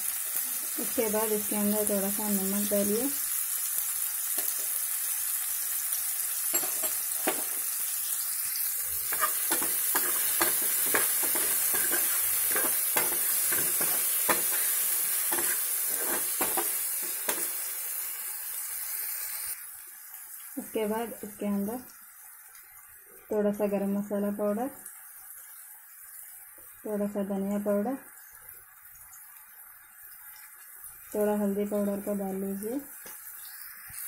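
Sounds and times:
vegetables sizzling in hot oil: 0:00.0 - 0:34.0
metal spoon scraping a pan: 0:08.9 - 0:17.7.

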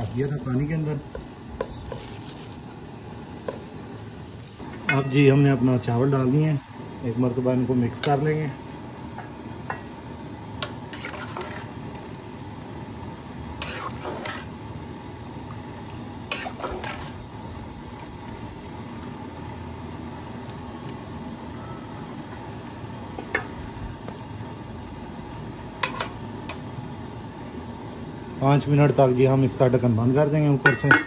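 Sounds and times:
broth boiling in a pot: 0:00.0 - 0:31.0
metal spatula stirring: 0:10.9 - 0:11.7, 0:13.6 - 0:14.5, 0:16.3 - 0:17.2
spatula clinking against pot: 0:30.6 - 0:31.0.

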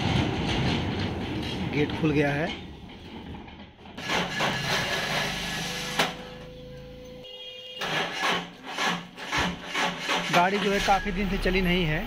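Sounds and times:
starter motor cranking engine: 0:07.8 - 0:11.1.

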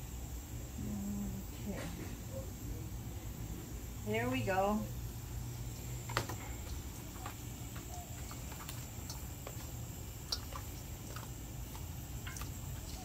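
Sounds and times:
steady low hum: 0:00.0 - 0:13.0
fish rubbed in steel bowl: 0:06.6 - 0:13.0.

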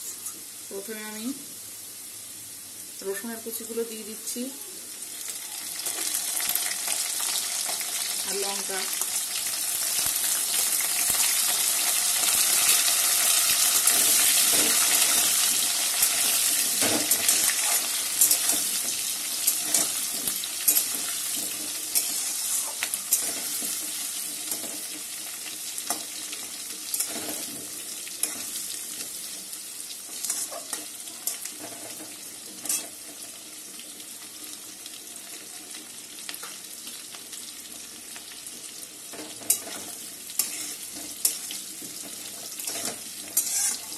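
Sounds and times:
food sizzling in hot oil: 0:00.0 - 0:43.9
metal spatula scraping pan: 0:13.9 - 0:24.7, 0:40.4 - 0:41.5, 0:42.6 - 0:43.9.

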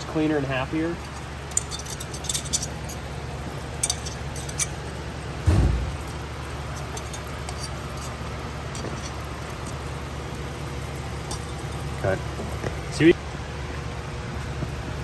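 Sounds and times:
pump humming: 0:00.0 - 0:15.0
dull thump: 0:05.4 - 0:06.1.

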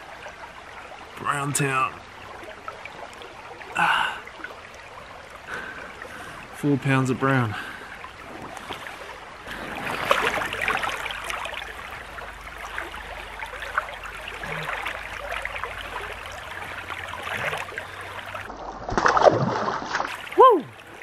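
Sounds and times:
stream rippling over stones: 0:00.0 - 0:21.0
water splashing from hands: 0:07.6 - 0:21.0.

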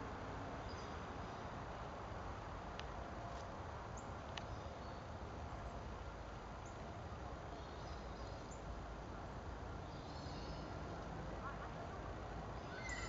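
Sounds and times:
faint high chirps: 0:12.6 - 0:13.0.

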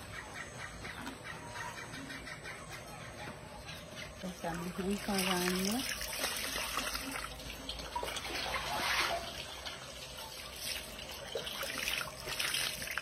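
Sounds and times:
water splashing and trickling: 0:04.2 - 0:13.0.

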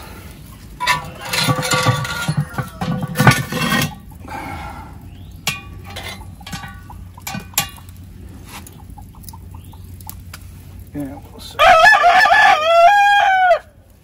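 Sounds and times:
chicken calling: 0:08.7 - 0:10.2, 0:11.6 - 0:13.7.

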